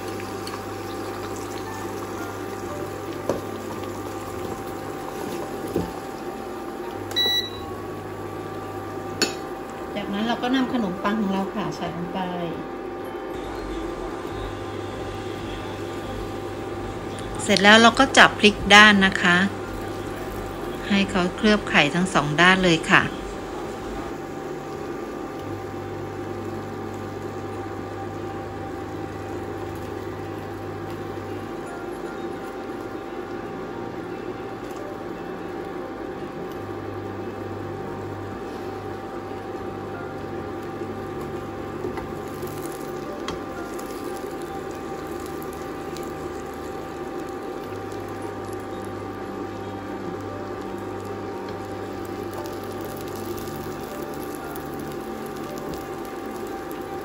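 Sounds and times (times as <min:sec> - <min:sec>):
egg mixture sizzling in butter: 0:00.0 - 0:11.6, 0:13.3 - 0:36.9, 0:38.4 - 0:57.0
electrical hum: 0:00.0 - 0:57.0
short high beep: 0:07.2 - 0:07.7.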